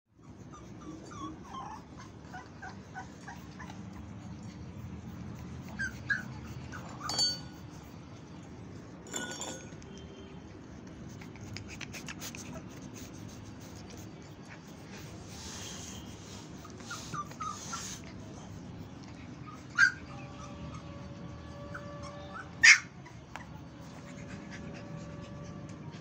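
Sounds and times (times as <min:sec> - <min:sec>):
puppy yelps: 0:00.2 - 0:04.0, 0:05.7 - 0:07.4, 0:19.4 - 0:23.7
puppies whimpering and yipping: 0:00.2 - 0:08.0, 0:14.6 - 0:26.0.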